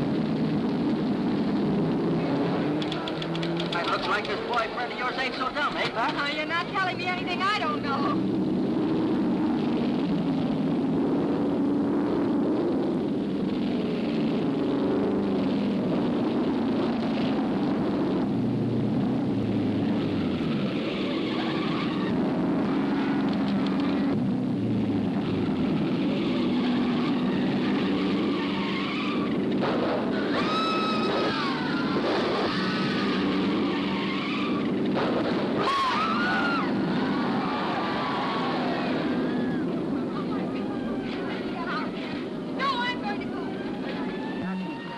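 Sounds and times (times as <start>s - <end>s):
noisy rush: 0.0s - 44.9s
racing car engines droning: 0.0s - 44.9s
high wavering screams: 30.2s - 34.6s, 35.6s - 39.7s
crowd yelling: 30.3s - 33.3s, 35.6s - 41.9s.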